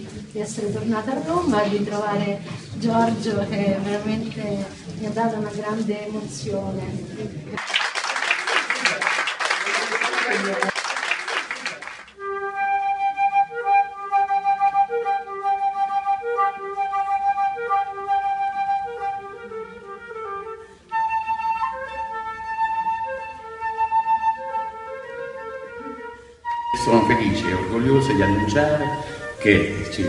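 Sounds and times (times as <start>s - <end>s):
flute melody: 12.2s - 30.0s.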